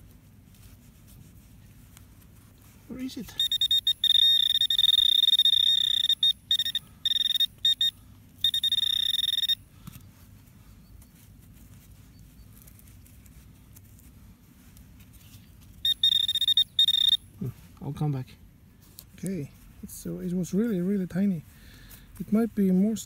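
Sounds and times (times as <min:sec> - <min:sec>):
metal detector alarm tone: 0:03.3 - 0:09.6, 0:15.8 - 0:17.3.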